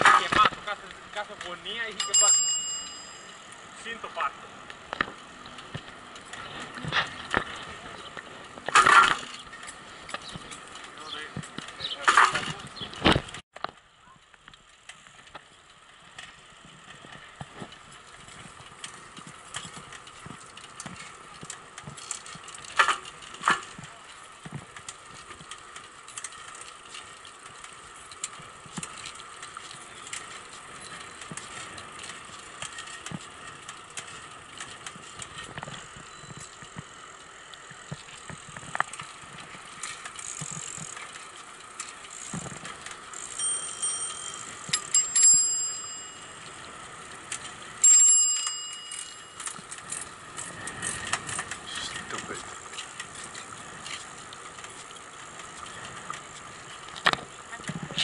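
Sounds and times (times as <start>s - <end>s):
bicycle clicks and rattles: 0.0s - 58.0s
bicycle tyre and drivetrain noise: 0.0s - 58.0s
bicycle bell ringing: 1.9s - 3.9s, 43.2s - 50.0s.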